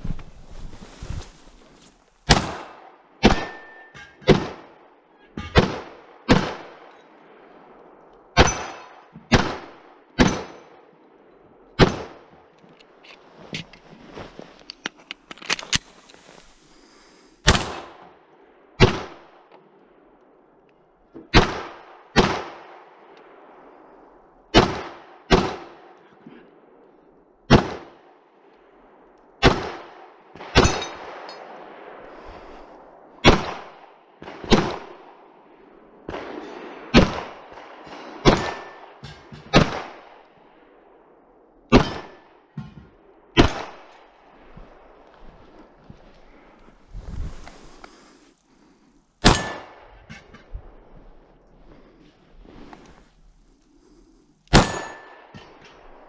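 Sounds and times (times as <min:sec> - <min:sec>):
pistol shots echoing: 0:02.3 - 0:07.0, 0:08.3 - 0:10.9, 0:17.4 - 0:18.0, 0:29.4 - 0:31.8, 0:36.1 - 0:40.2, 0:41.7 - 0:42.5, 0:43.3 - 0:44.2, 0:49.2 - 0:49.9, 0:54.5 - 0:56.0.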